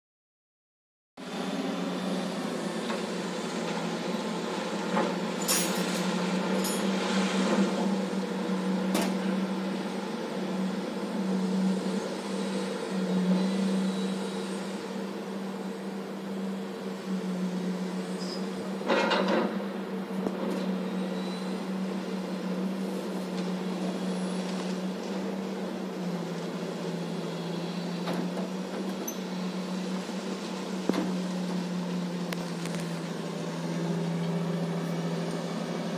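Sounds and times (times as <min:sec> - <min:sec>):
heavy diesel machinery droning: 0:01.2 - 0:35.9.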